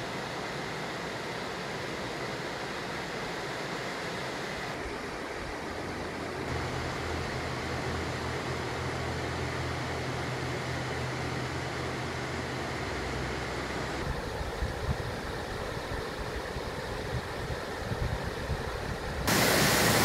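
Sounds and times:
waterfall rushing: 19.3 - 20.0.

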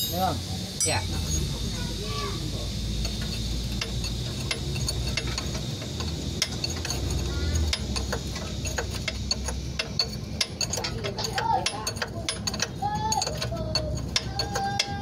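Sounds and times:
steady low hum: 0.0 - 15.0
wrench clicking on bolt: 3.0 - 15.0.

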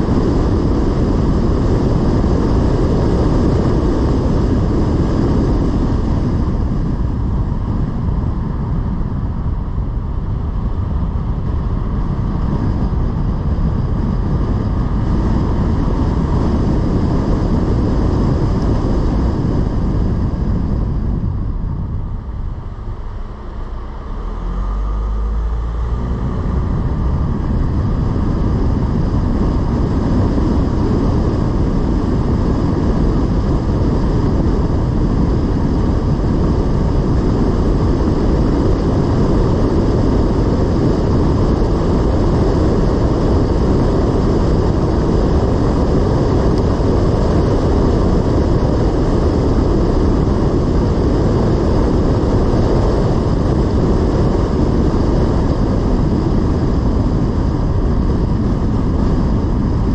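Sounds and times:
car road and engine noise: 0.0 - 59.9.

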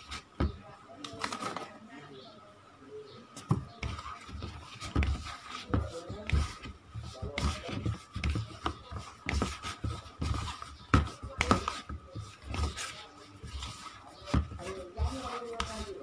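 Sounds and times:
dough kneading thumps: 0.0 - 1.8, 3.3 - 16.0.

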